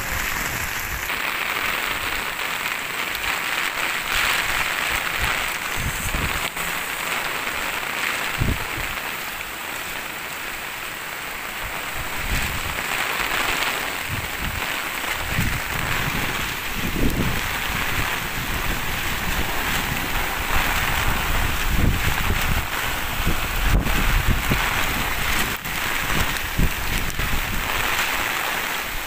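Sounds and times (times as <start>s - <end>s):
wind buffeting microphone: 0.0s - 1.1s, 4.1s - 7.4s, 8.2s - 9.0s, 11.6s - 12.8s, 14.0s - 28.1s
heavy rain on pavement: 0.0s - 29.0s.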